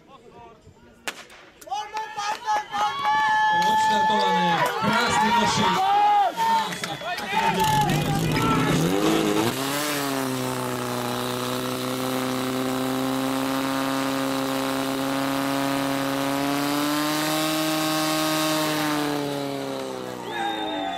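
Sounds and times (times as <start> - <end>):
pump engine running at high revs: 7.6 - 20.7.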